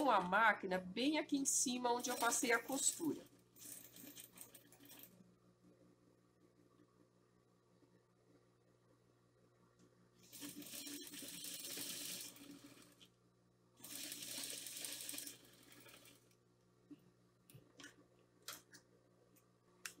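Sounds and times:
sewing machine stitching: 2.0s - 5.1s, 10.2s - 13.0s, 13.8s - 16.2s.

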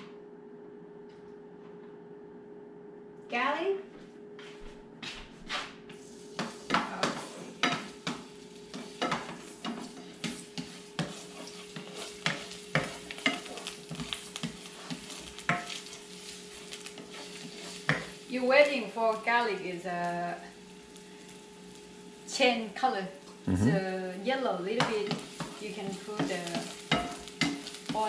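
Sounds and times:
spatula scraping a pan: 6.0s - 18.2s, 24.8s - 28.0s
garlic sizzling in oil: 6.0s - 23.4s, 24.4s - 28.0s.

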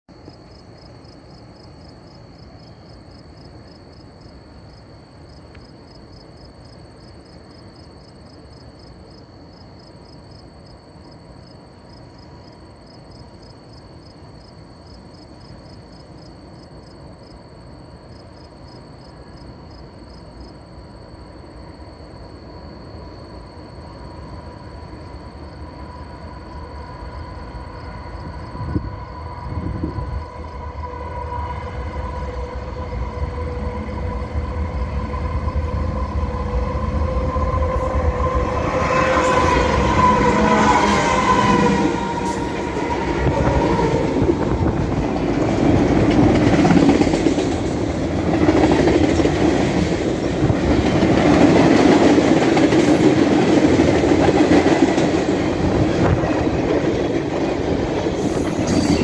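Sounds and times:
crickets chirping: 0.1s - 59.0s
diesel train rumble: 23.6s - 59.0s.

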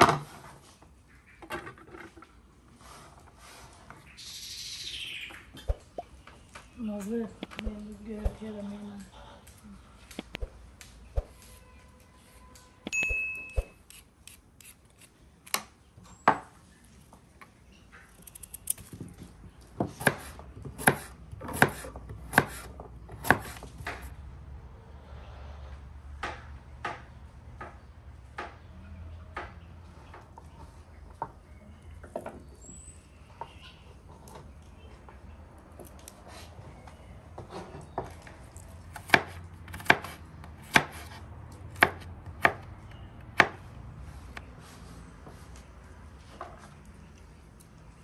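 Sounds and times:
knife chopping on wooden board: 19.8s - 24.1s, 38.9s - 42.6s.

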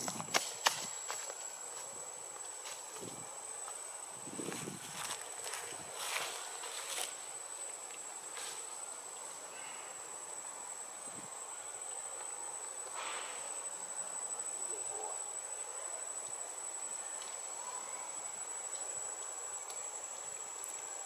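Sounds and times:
faint background hiss: 0.0s - 21.0s
insects calling: 0.0s - 21.0s.

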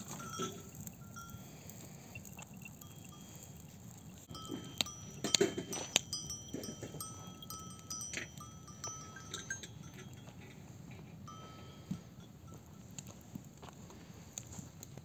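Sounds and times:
livestock bells clinking: 0.0s - 14.3s
sharp metallic clanks: 4.2s - 12.9s.

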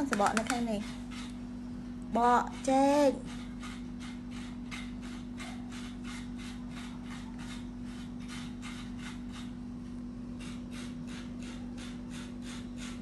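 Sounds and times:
steady low hum: 0.0s - 13.0s
rhythmic rasping strokes: 2.2s - 9.6s, 10.3s - 13.0s.

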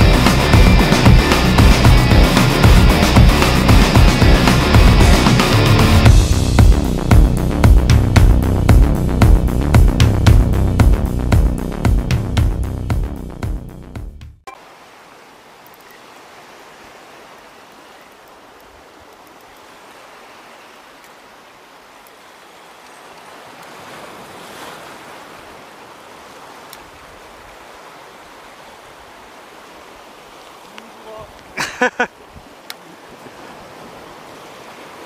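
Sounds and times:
sea surf on shore: 0.0s - 7.3s, 14.5s - 35.0s.

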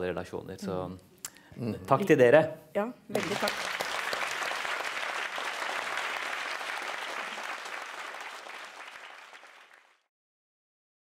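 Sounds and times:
audience applauding: 3.2s - 10.1s.

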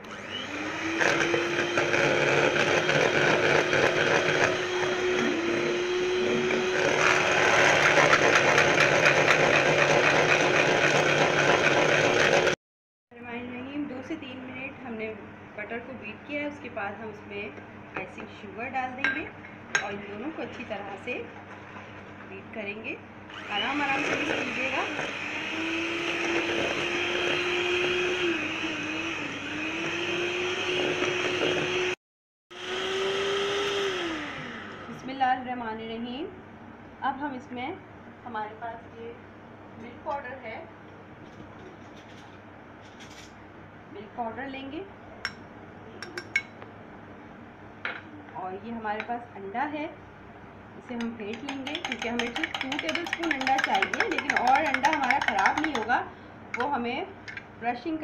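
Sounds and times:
electric hand mixer running: 0.0s - 12.6s, 23.3s - 35.1s, 51.5s - 55.9s
beaters rattling against bowl: 51.3s - 56.0s.

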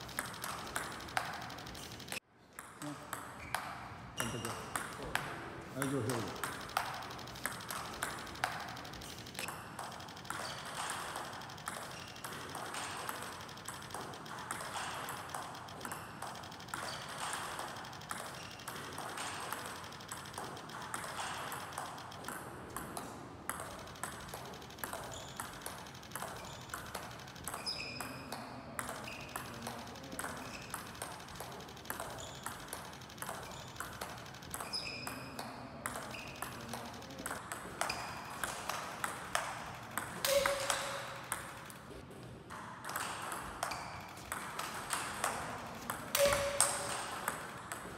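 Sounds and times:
ball bouncing on table: 0.0s - 41.8s, 42.5s - 47.9s
table tennis ball hitting paddle: 0.0s - 41.9s, 42.5s - 47.9s.

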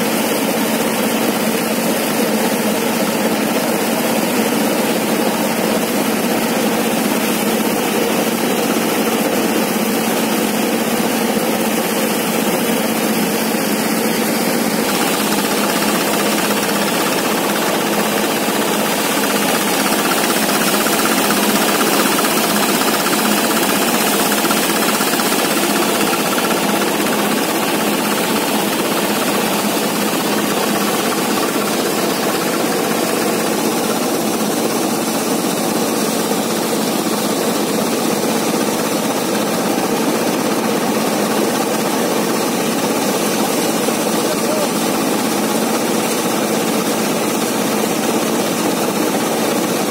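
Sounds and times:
thresher mechanical rattle: 11.8s - 37.7s, 39.1s - 49.5s.

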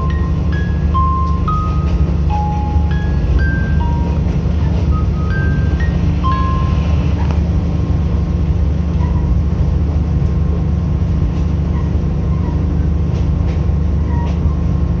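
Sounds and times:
diesel railcar engine rumble: 0.0s - 15.0s.

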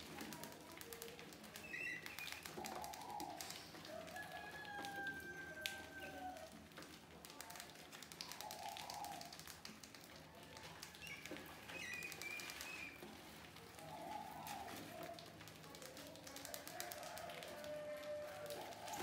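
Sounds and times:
mice claws scratching plastic: 0.0s - 19.0s
bird calls: 1.5s - 4.3s, 10.8s - 15.2s.

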